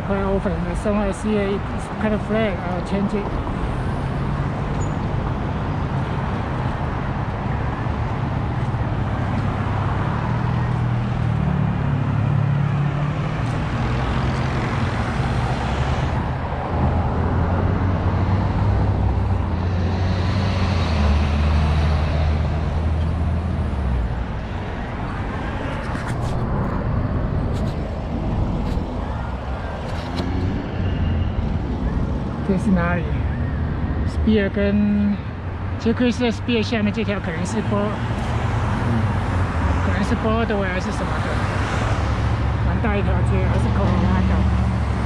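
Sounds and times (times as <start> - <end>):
cars and trucks driving by: 0.0 - 45.0
deeper engine drone: 10.7 - 45.0.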